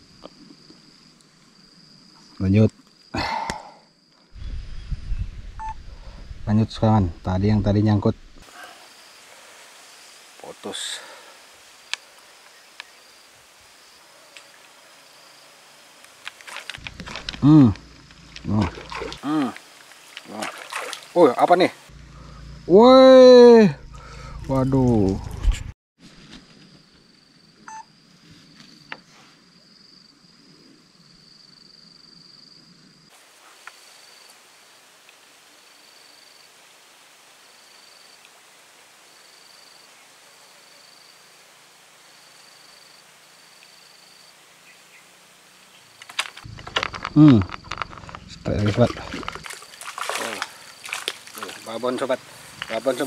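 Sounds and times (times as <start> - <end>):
soft outdoor hiss: 0.0 - 23.6, 26.0 - 53.0
insect buzzing: 8.4 - 22.7, 29.6 - 53.0
water splashing: 16.2 - 21.9, 46.6 - 53.0.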